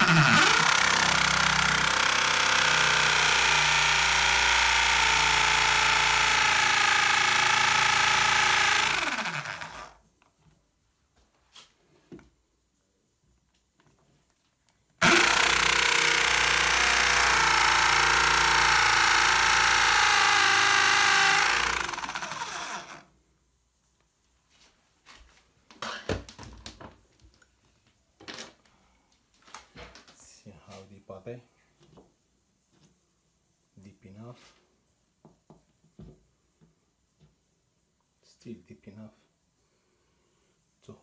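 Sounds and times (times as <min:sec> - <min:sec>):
electric drill boring into wall: 0:00.0 - 0:10.0, 0:15.0 - 0:23.0.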